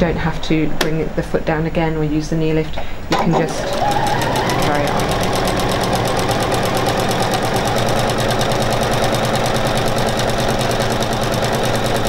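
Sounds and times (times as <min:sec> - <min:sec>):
sewing machine rattling: 0:03.3 - 0:12.0.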